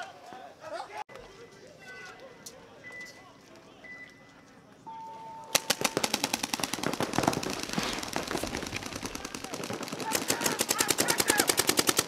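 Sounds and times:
brief steady tone: 3.8s - 5.6s
paintball markers firing: 5.6s - 12.0s.

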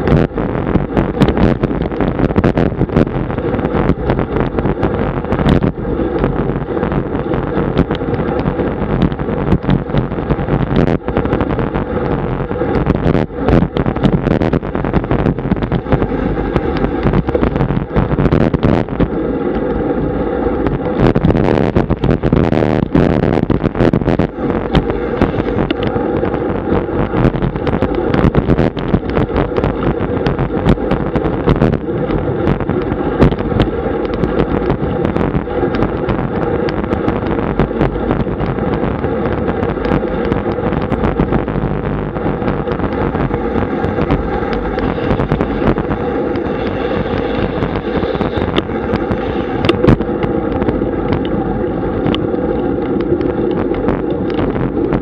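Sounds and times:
sharp clicks and rattles: 0.0s - 55.0s
tyres rumbling on asphalt: 0.0s - 55.0s
wind rushing over microphone: 0.0s - 55.0s.

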